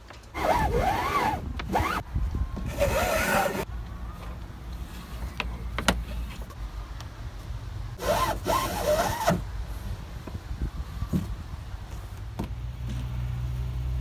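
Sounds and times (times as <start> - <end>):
rope rubbing against hull: 0.4 - 2.0, 2.7 - 3.7, 8.0 - 9.4
squeaky rasp of rope: 0.4 - 2.0, 2.7 - 3.7, 8.0 - 9.4.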